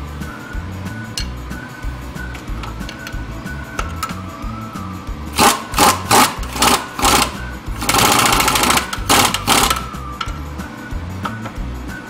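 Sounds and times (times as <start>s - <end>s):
ratchet wrench clicking: 5.4s - 10.4s.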